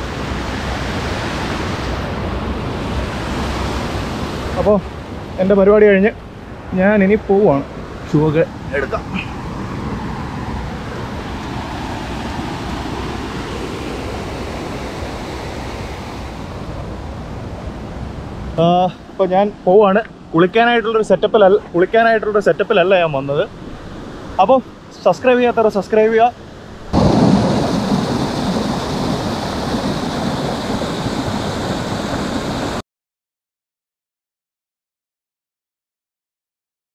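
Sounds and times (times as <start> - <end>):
stream water rushing: 0.0 - 32.8
water gushing into a pool: 26.9 - 32.8.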